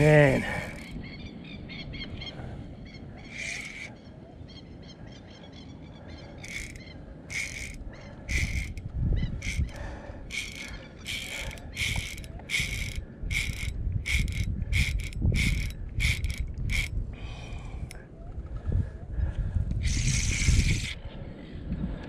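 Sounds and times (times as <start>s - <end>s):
fishing reel ratcheting: 0.0s - 1.0s, 3.3s - 3.9s, 6.4s - 17.0s, 19.8s - 21.0s.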